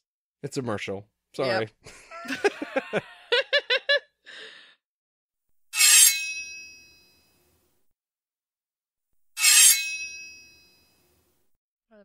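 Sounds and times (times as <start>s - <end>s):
people laughing: 1.5s - 4.1s
sharp ringing clink: 5.8s - 7.4s, 9.4s - 11.1s.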